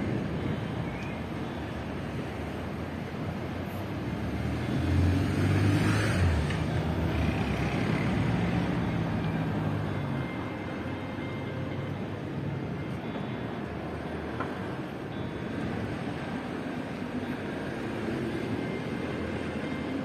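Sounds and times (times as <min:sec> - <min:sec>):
vehicle engine passing by: 0:04.3 - 0:09.2.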